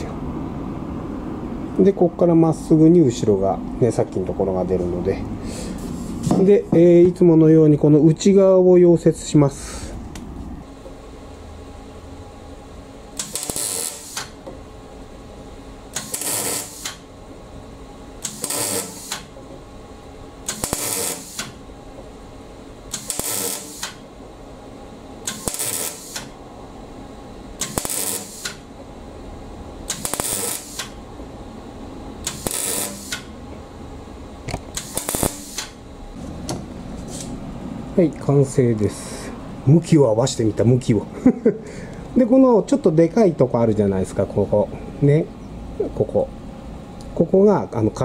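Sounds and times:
welder arc crackling: 12.6s - 14.7s, 15.4s - 17.2s, 18.1s - 19.6s, 20.3s - 24.1s, 25.2s - 26.4s, 27.5s - 28.8s, 29.8s - 31.1s, 32.2s - 33.5s, 34.4s - 37.3s.

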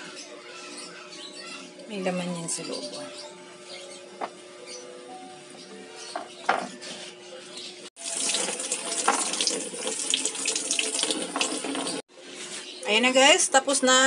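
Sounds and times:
water running from a tap: 8.0s - 12.1s.

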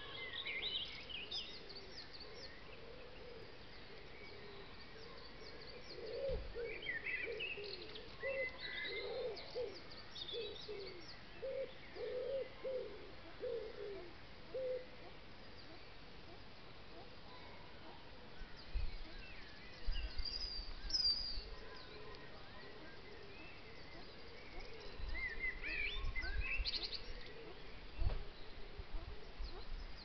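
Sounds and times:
pigeon cooing: 6.0s - 9.8s, 10.4s - 15.1s
small birds chirping and trilling: 17.4s - 30.0s.

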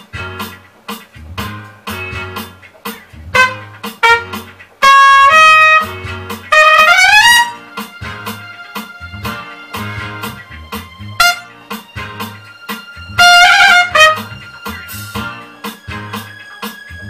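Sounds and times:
accompaniment with beat and bass: 0.0s - 17.0s
trumpet playing melody: 3.3s - 7.8s, 11.2s - 11.6s, 13.1s - 14.5s.

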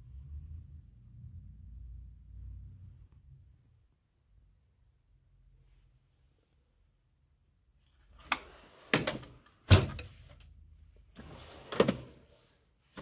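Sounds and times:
drawers knocking shut: 8.8s - 10.2s, 11.2s - 12.2s
metal drawers sliding: 11.2s - 12.3s.

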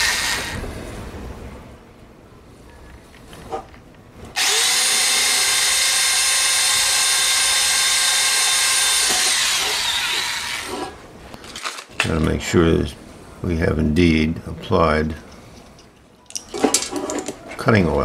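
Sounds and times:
drill motor winding down: 0.0s - 0.6s, 4.4s - 11.0s
electric drill whining: 0.0s - 0.6s, 4.4s - 11.0s.

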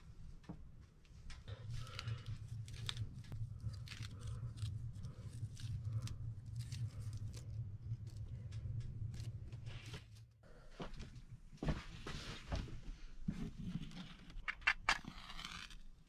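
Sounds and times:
low steady hum: 0.0s - 16.0s
aluminium foil crinkling: 1.5s - 10.2s.

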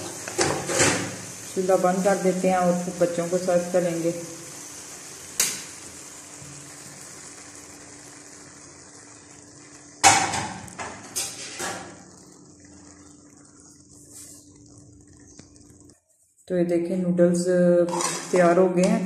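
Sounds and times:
food sizzling in a wok: 0.0s - 16.0s
metal knocking and scraping a pan: 0.3s - 1.2s, 10.0s - 12.0s.

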